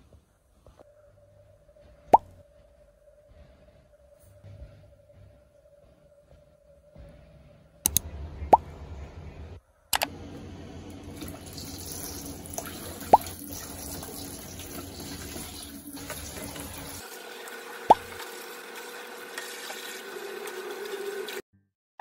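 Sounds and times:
tap water running into sink: 0:10.9 - 0:21.4.

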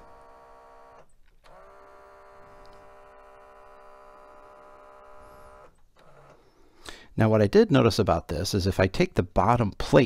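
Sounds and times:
tape deck mechanism whirring: 0:00.0 - 0:06.4.

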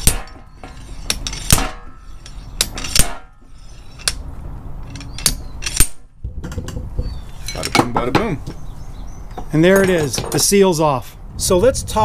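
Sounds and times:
slide hammer clanking on metal: 0:07.4 - 0:08.4, 0:09.4 - 0:10.6.

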